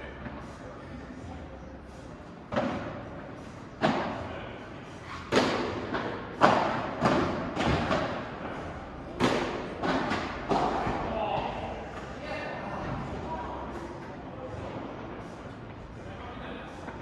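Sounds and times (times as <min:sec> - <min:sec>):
rackets striking ball: 0:05.3 - 0:08.2, 0:09.2 - 0:11.5.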